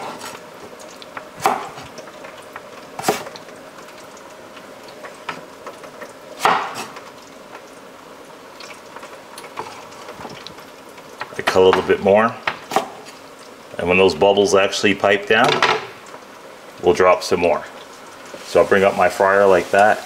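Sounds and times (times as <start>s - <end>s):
fries bubbling in deep fryer: 0.0s - 20.0s
knife chopping on cutting board: 1.4s - 1.8s, 6.4s - 7.0s.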